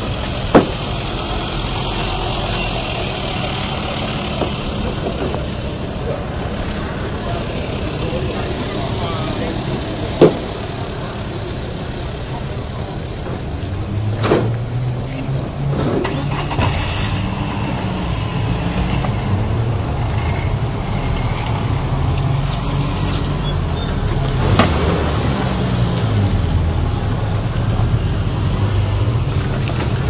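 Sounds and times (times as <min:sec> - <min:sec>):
car engine droning: 0:00.0 - 0:30.0
sharp knocks: 0:00.5 - 0:00.8.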